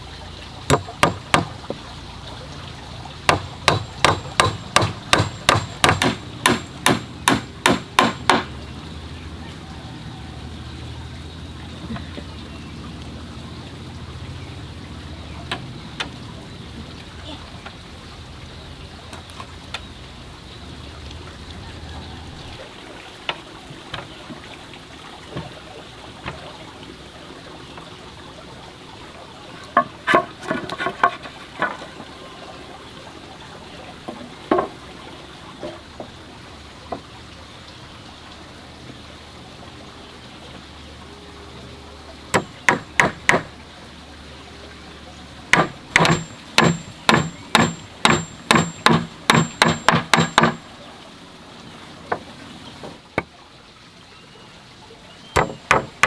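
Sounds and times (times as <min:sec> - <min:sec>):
hammer driving nails into wood: 0:45.6 - 0:50.6.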